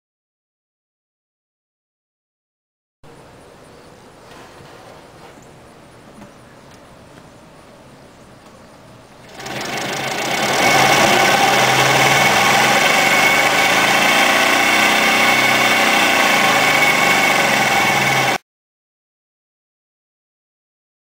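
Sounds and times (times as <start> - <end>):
electric motor whirring: 9.3 - 18.4.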